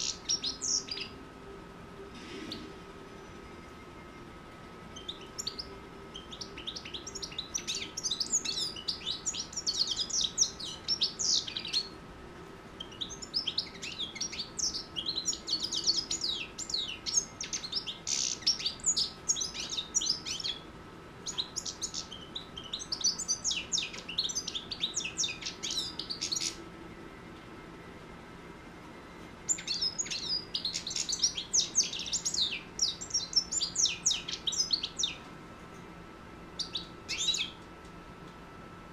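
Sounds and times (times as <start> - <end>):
goldfinch twittering song: 0.0 - 1.2, 4.9 - 12.0, 12.8 - 20.6, 21.2 - 26.6, 29.5 - 35.2, 36.6 - 37.6
faint steady hum: 0.0 - 38.9.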